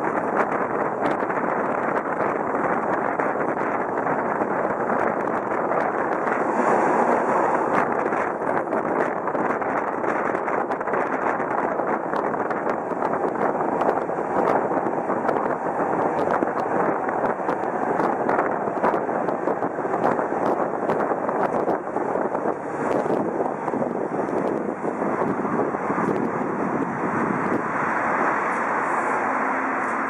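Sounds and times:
tram wheels rumbling on rails: 0.0 - 30.0.

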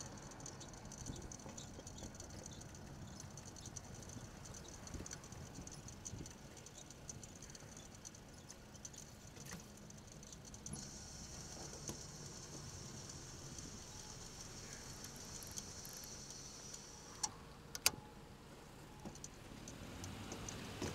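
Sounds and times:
bicycle ticking and rattling: 0.0 - 17.9, 19.0 - 20.9
bicycle tyres hissing on asphalt: 10.7 - 17.1.

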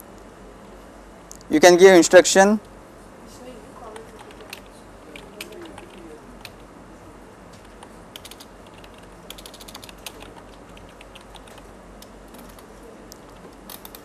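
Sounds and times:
keyboard key clicks: 7.6 - 14.0.

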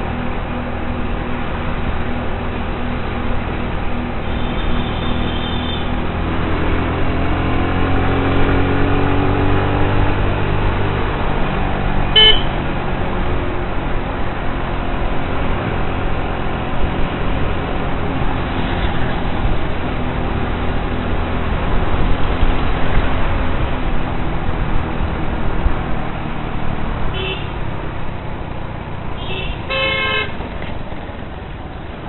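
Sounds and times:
road traffic noise: 0.0 - 32.0
horn toot: 12.1 - 12.6, 27.2 - 27.6, 29.2 - 30.4.

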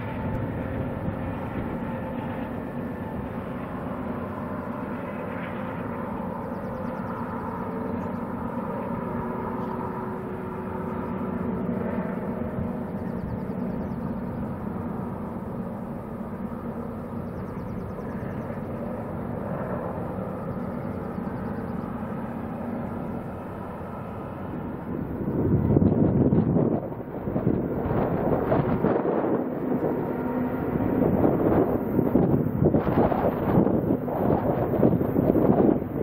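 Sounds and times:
freight train rumbling: 0.0 - 36.0.

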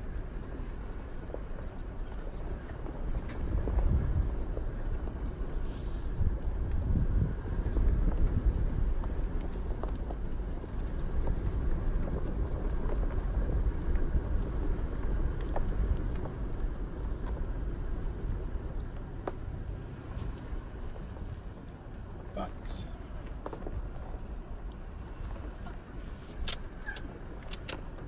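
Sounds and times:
engine and tyres rumbling: 0.0 - 28.0
light ticks and clicks: 26.4 - 28.0.

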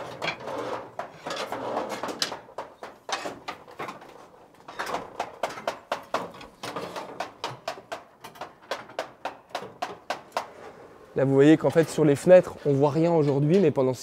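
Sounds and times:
knocks and clacks on scaffold: 0.0 - 10.8.

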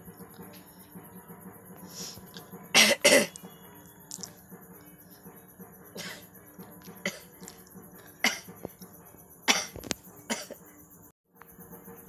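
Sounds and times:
woman sniffing: 1.9 - 2.3.

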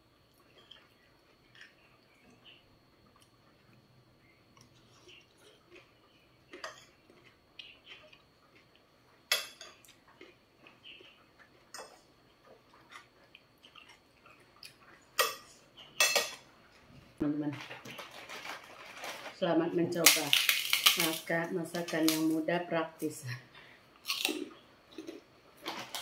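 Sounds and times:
soft chewing: 0.0 - 15.8
cutlery clinking and scraping on plate: 15.2 - 16.4.

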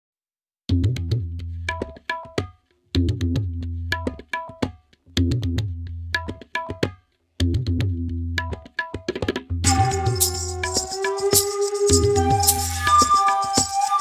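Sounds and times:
percussive drum music: 0.7 - 14.0.

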